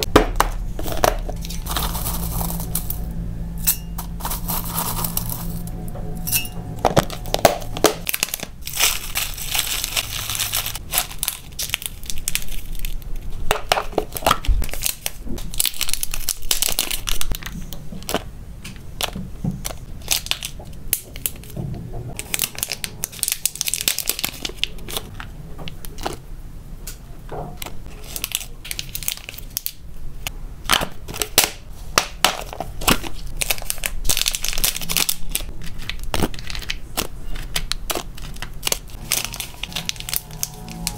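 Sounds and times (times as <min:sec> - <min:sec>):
plastic bags crinkling: 0:00.7 - 0:03.0, 0:06.9 - 0:18.3, 0:19.0 - 0:21.6, 0:22.2 - 0:26.2, 0:27.9 - 0:29.8, 0:32.3 - 0:40.9
dried pieces rustling and clicking: 0:07.0 - 0:21.6, 0:27.6 - 0:29.8, 0:32.0 - 0:40.9.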